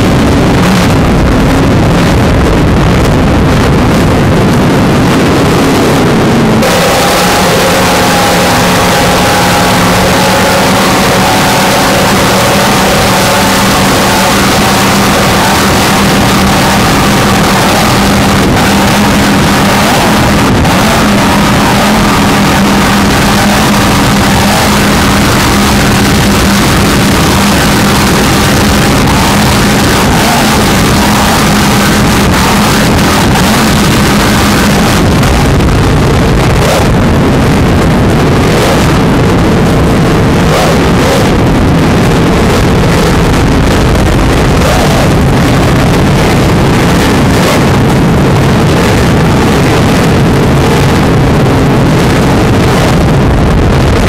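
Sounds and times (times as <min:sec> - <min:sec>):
powerboat engines roaring: 0:00.0 - 0:54.0
wind on microphone: 0:00.0 - 0:54.0
rushing water: 0:03.9 - 0:54.0.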